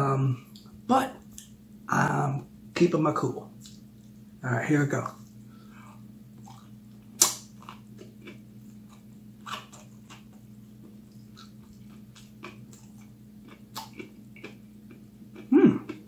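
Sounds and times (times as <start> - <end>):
faint low hum: 0.0 - 16.0
person chewing with wet smacks: 6.4 - 16.0.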